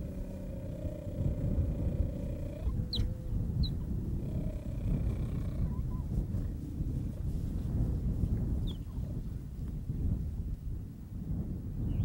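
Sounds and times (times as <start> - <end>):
cheetahs growling: 0.0 - 7.0.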